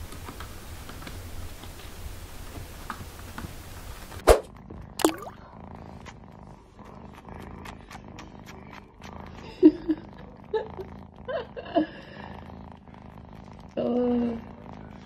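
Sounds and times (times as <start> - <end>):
cat purring: 0.1 - 15.0
quick swish: 4.2 - 4.5.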